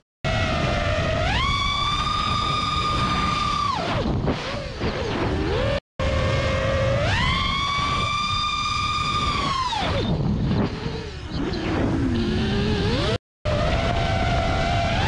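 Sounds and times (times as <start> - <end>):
quadcopter motors whining: 0.3 - 15.0.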